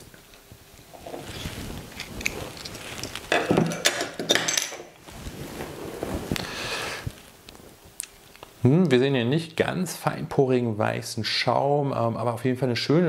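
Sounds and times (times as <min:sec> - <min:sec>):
bottle and glass knocks and clinks: 0:03.3 - 0:04.9.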